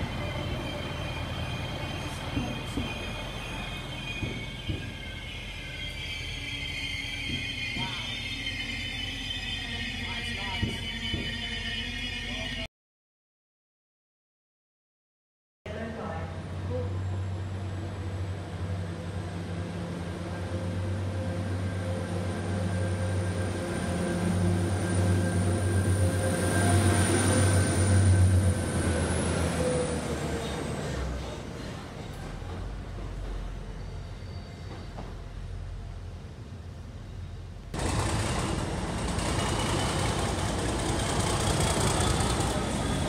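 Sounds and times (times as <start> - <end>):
diesel train engine drone: 0.0 - 12.7, 15.7 - 43.0
diesel locomotive engine running: 37.4 - 43.0.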